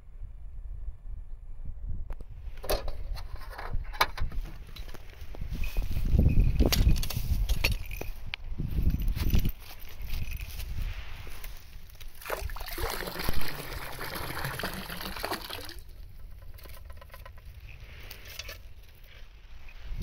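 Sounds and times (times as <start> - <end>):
water splashing and trickling: 11.3 - 18.7.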